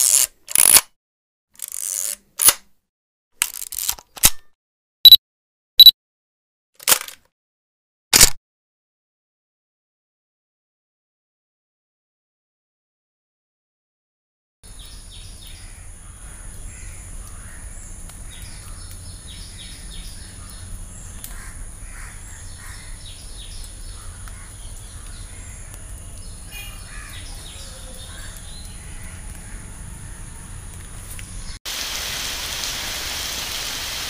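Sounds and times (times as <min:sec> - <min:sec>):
birds calling: 0:14.7 - 0:31.6
crows cawing: 0:15.6 - 0:18.9, 0:19.8 - 0:23.2, 0:23.8 - 0:30.4.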